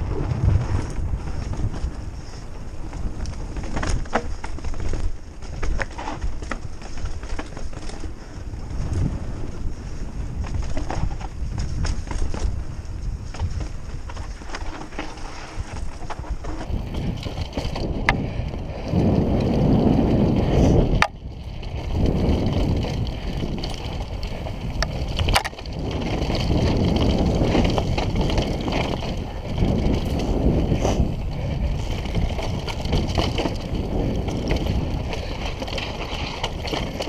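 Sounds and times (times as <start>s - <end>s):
bike tyres rumbling over ground: 0.0s - 37.0s
wind buffeting microphone: 0.0s - 37.0s
bike knocking over bumps: 18.9s - 37.0s.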